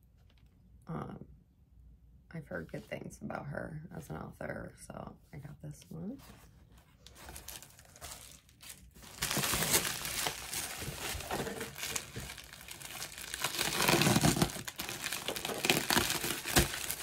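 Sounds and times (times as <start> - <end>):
packaging crinkling and rustling: 7.0 - 17.0.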